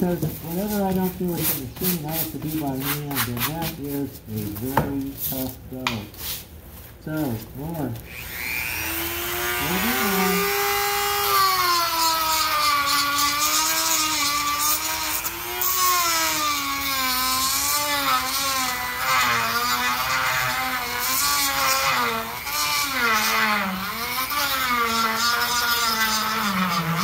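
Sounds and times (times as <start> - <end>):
electric grinder running under load: 8.1 - 27.0.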